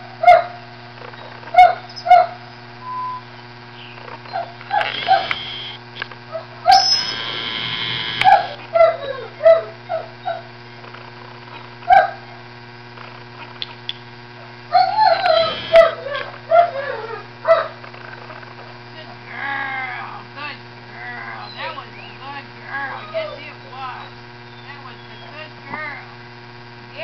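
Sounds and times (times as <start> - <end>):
dog whining and yipping: 4.3 - 5.7, 6.4 - 10.5, 14.7 - 17.3.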